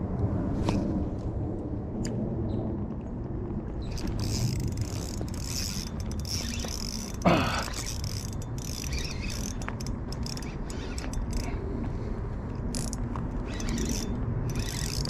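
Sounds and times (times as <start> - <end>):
fishing reel ratcheting whir: 3.9 - 11.6, 12.7 - 15.0.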